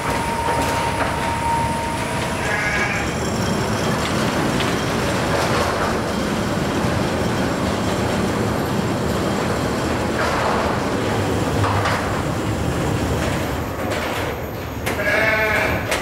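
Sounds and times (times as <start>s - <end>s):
rail robot mechanical rumble: 0.0s - 16.0s.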